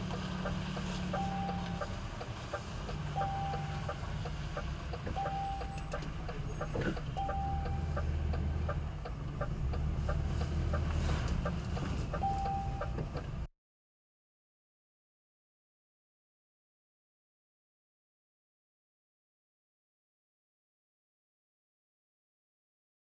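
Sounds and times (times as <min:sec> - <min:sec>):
low engine hum: 0:00.0 - 0:13.5
turn signal ticking: 0:00.0 - 0:13.5
short high beep: 0:01.2 - 0:01.8, 0:03.2 - 0:03.8, 0:05.2 - 0:06.0, 0:12.2 - 0:12.9.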